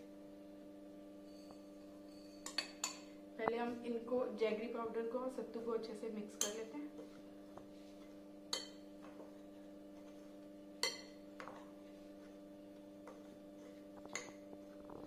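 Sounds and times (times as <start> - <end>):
faint steady hum: 0.0 - 15.0
spoon clinking against glass bowl: 1.2 - 3.1, 8.5 - 8.9, 10.8 - 11.2.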